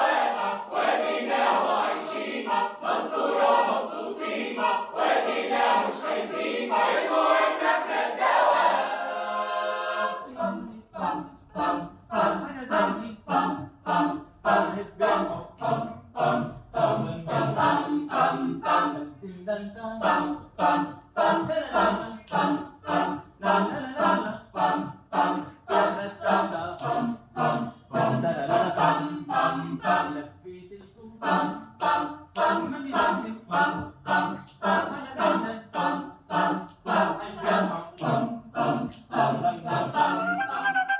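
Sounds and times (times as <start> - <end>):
a cappella group singing: 0.0 - 40.9.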